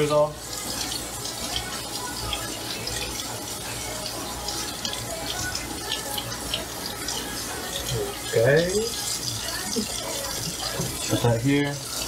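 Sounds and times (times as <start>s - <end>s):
faucet running into metal sink: 0.0s - 12.0s.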